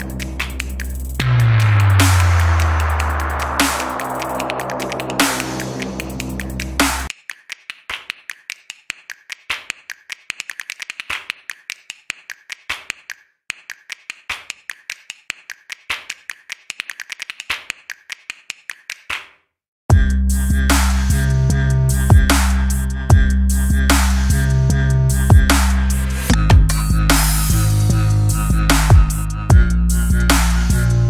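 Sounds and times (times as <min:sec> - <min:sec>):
dubstep electronic music: 0:00.0 - 0:07.1, 0:19.9 - 0:31.0
clicking and tapping percussion: 0:04.0 - 0:19.3.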